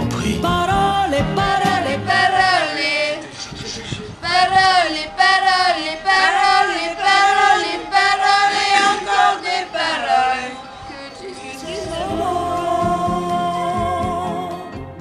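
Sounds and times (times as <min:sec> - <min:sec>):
person singing in a high register: 0:10.9 - 0:14.7.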